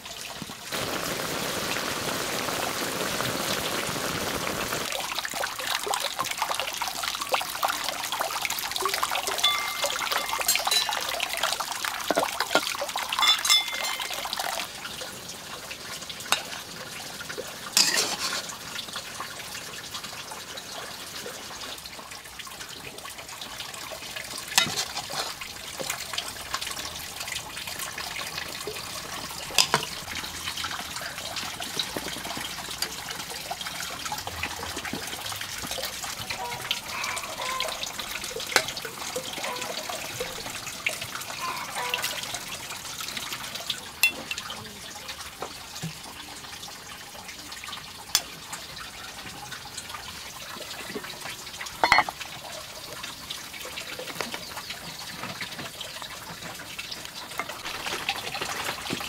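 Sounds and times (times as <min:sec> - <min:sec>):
running water trickling: 0:00.0 - 0:59.0
utensils clinking on bowls: 0:09.1 - 0:14.6, 0:17.8 - 0:18.5, 0:24.6 - 0:25.5, 0:29.5 - 0:30.0, 0:44.0 - 0:44.4, 0:51.8 - 0:52.2.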